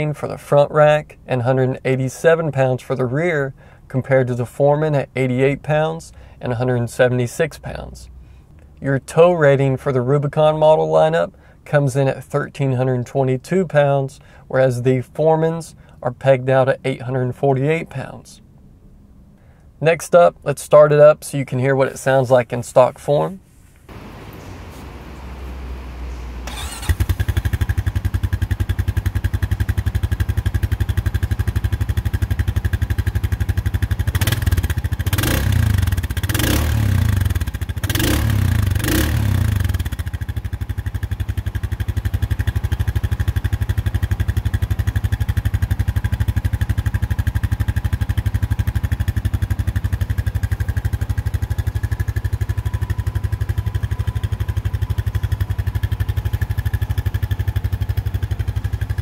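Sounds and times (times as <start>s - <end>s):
engine starting and idling: 23.9s - 31.2s, 37.4s - 59.0s.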